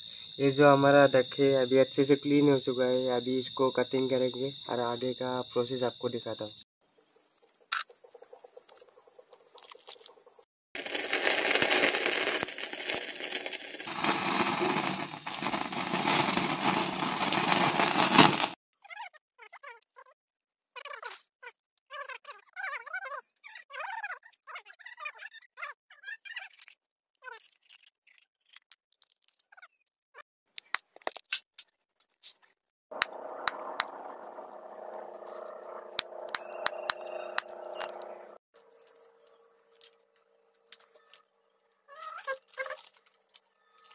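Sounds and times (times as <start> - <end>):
skin crackling in flame: 10.8 - 18.6
background hum: 33.0 - 41.8.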